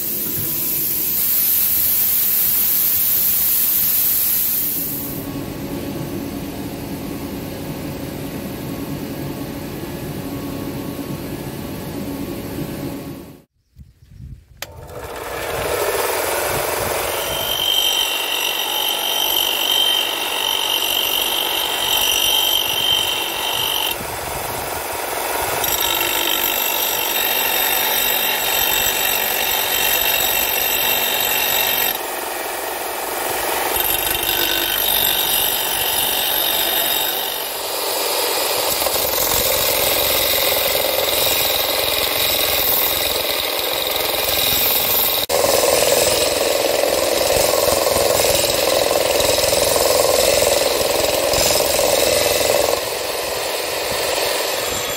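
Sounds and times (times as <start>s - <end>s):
bench grinder motor whine: 14.6s - 38.0s
steel grinding on abrasive: 15.0s - 54.9s.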